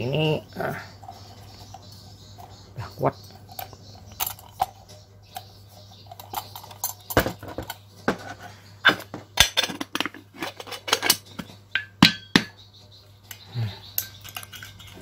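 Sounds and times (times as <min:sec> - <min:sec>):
metal paint cup clinking: 0:00.9 - 0:07.8, 0:09.4 - 0:12.6, 0:13.2 - 0:15.0.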